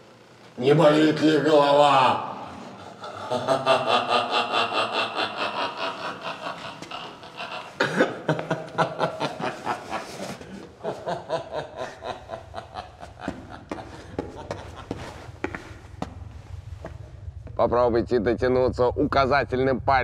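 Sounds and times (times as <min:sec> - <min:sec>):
person laughing: 0:01.8 - 0:15.7.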